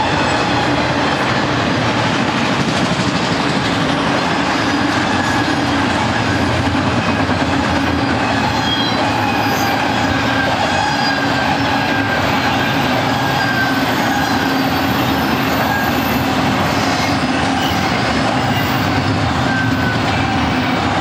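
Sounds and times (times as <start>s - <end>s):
train wheels rumbling on rail: 0.0s - 21.0s
wheel squeals: 7.9s - 20.9s.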